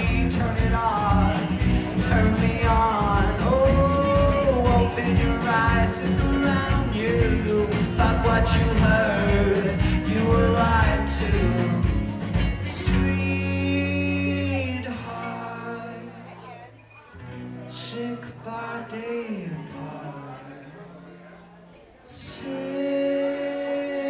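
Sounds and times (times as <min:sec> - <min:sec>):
person singing: 0:00.0 - 0:16.5, 0:22.1 - 0:24.0
rock band playing: 0:00.0 - 0:16.5.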